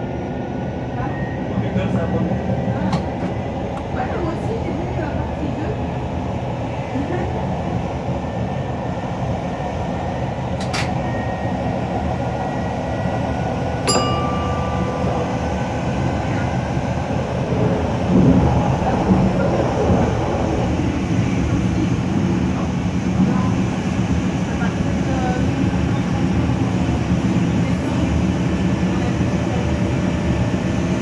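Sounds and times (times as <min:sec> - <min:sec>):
train wheels rumbling on rail: 0:00.0 - 0:31.0
metal clink with ringing tone: 0:13.9 - 0:16.5.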